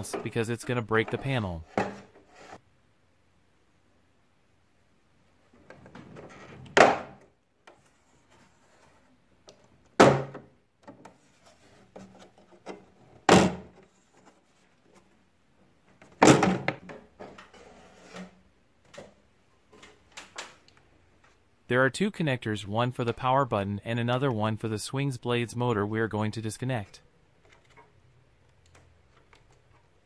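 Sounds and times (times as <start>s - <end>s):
plastic handling noise: 27.3s - 30.0s.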